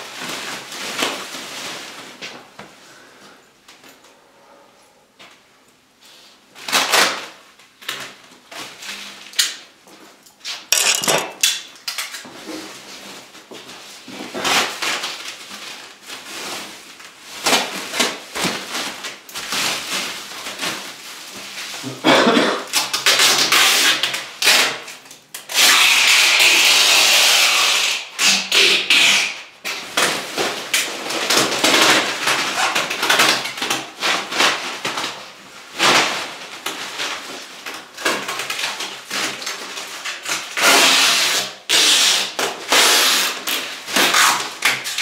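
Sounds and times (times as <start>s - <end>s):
bubble wrap crinkling: 0.0s - 2.6s, 11.7s - 22.0s
plastic screeching off a roll: 40.6s - 45.0s.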